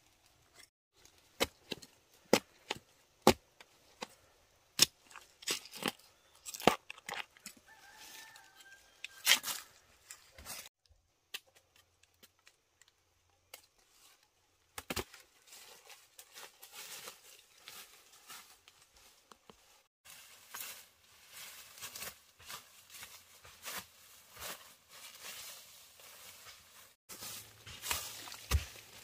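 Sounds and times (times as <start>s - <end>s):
sharp chopping strikes: 27.8s - 29.0s.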